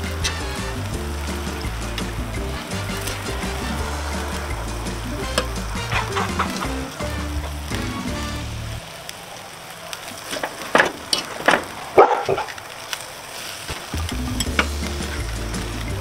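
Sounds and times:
metal spatula scraping pan: 0:00.0 - 0:07.6
background music: 0:00.0 - 0:08.9, 0:14.0 - 0:16.0
tortillas sizzling in fat: 0:00.0 - 0:16.0.

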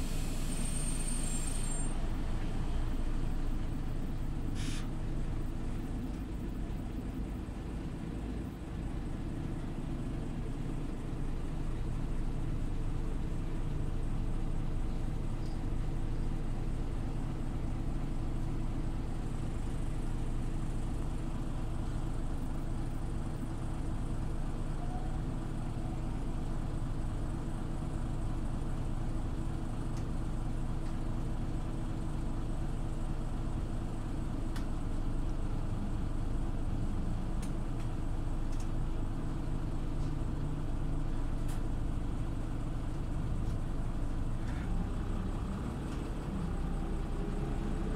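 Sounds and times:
bus engine drone: 0:00.0 - 0:47.9
road noise: 0:00.0 - 0:47.9
faint clicks: 0:37.4 - 0:38.8.

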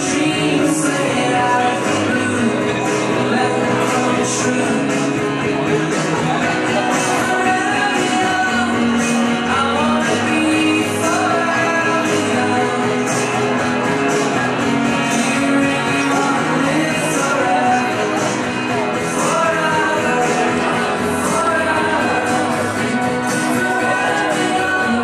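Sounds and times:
song with singing over loudspeakers: 0:00.0 - 0:25.0.

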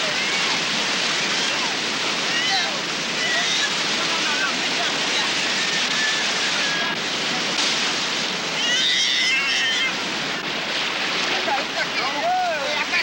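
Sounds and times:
heavy surf breaking: 0:00.0 - 0:13.0
girl wailing in distress: 0:08.6 - 0:10.0.

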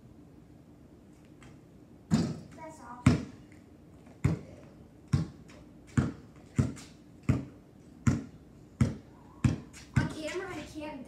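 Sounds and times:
basketball bouncing on concrete: 0:02.1 - 0:10.8.

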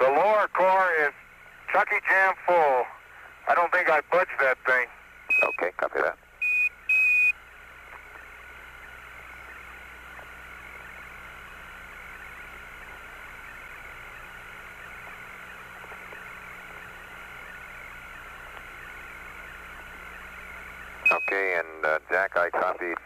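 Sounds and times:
low hum: 0:00.0 - 0:23.0
radio static hiss: 0:00.0 - 0:23.0.

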